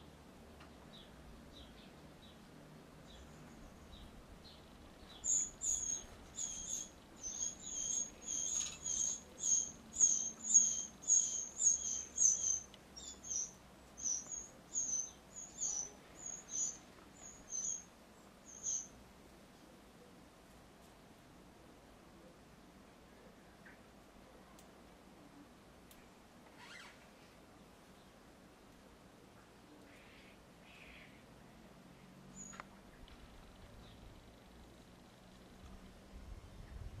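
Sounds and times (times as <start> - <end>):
sparrows chirping: 0.9 - 19.0.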